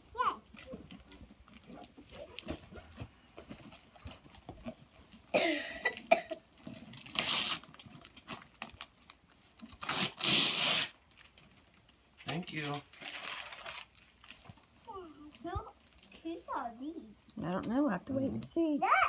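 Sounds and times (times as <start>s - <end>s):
wrapping paper ripping: 6.8s - 14.7s
paper rustling: 12.2s - 14.6s.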